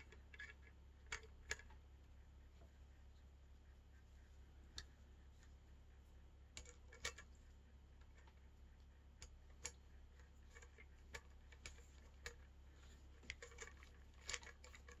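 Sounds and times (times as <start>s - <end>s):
small metal parts clicking: 10.4s - 15.0s.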